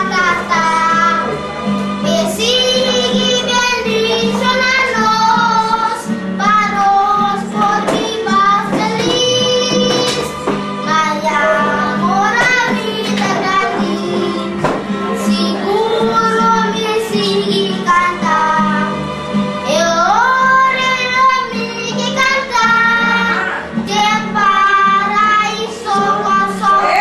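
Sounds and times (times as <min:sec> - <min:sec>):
boy singing: 0:00.0 - 0:01.4, 0:02.0 - 0:19.0, 0:19.7 - 0:27.0.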